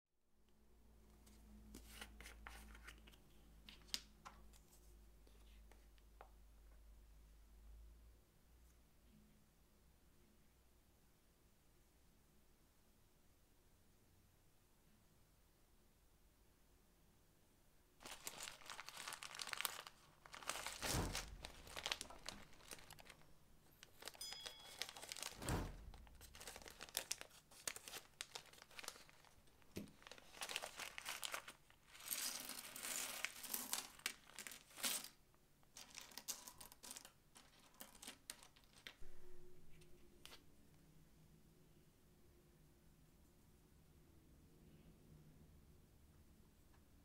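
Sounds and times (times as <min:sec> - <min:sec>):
small items shaken out: 0:18.0 - 0:23.2, 0:23.8 - 0:25.4
plastic bag crinkling: 0:18.0 - 0:35.2, 0:35.8 - 0:39.0.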